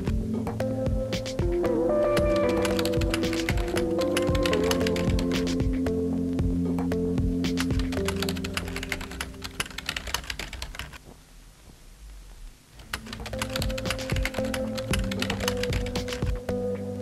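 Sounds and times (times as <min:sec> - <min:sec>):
droning background music: 0:00.0 - 0:10.2, 0:12.9 - 0:17.0
keyboard typing clicks: 0:02.2 - 0:05.7, 0:07.5 - 0:11.0, 0:12.8 - 0:16.4.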